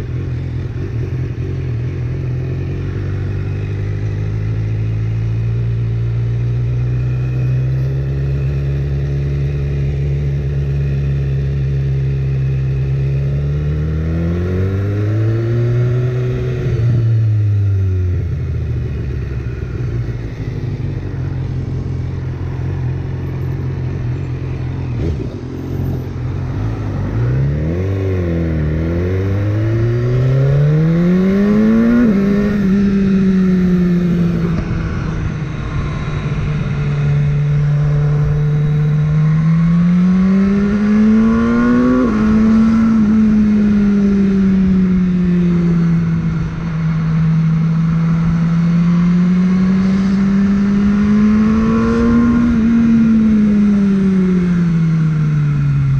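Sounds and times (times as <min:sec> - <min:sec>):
motorcycle engine accelerating: 0:00.0 - 0:55.9.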